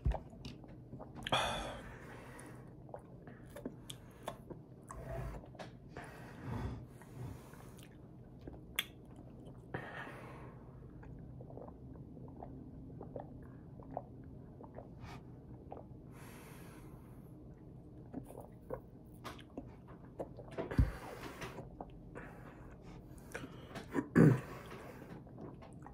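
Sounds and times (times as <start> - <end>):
person chewing and swallowing: 0.0 - 5.8, 7.0 - 9.7, 10.9 - 16.0, 18.0 - 25.9.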